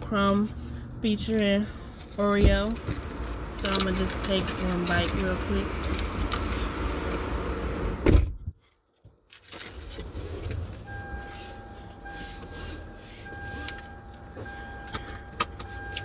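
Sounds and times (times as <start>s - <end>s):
car interior rumble: 0.0s - 8.6s.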